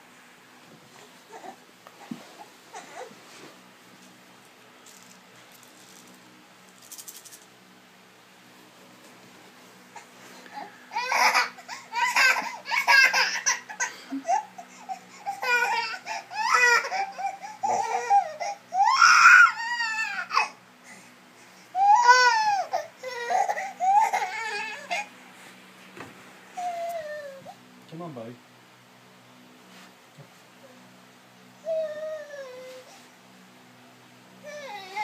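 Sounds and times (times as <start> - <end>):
infant crying: 10.0 - 20.6, 21.7 - 25.1, 26.6 - 27.6, 31.6 - 33.0, 34.4 - 35.0.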